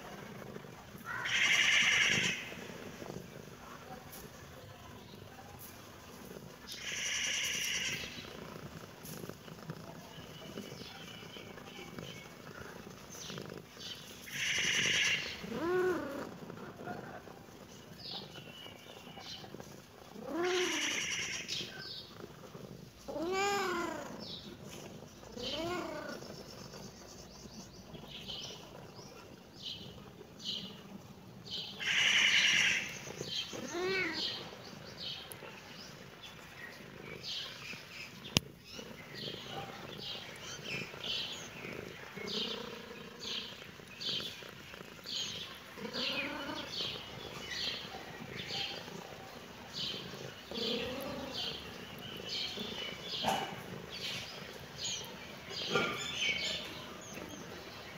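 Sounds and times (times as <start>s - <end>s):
cat meowing: 20.2s - 21.5s, 23.1s - 24.2s, 25.4s - 26.2s, 33.6s - 34.2s.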